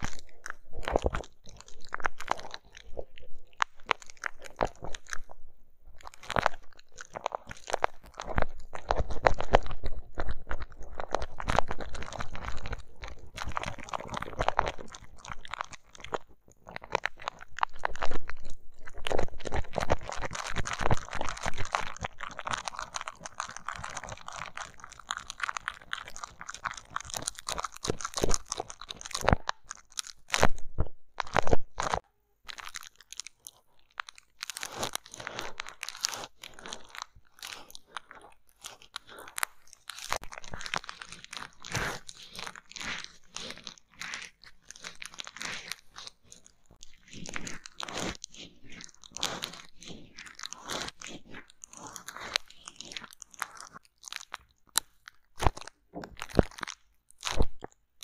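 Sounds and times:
crunchy crackling and clicking: 0.0 - 5.4, 6.0 - 57.8.

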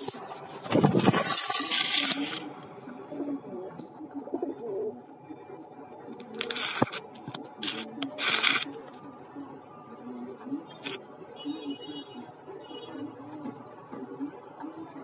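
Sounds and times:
pigeons cooing: 0.0 - 5.1.

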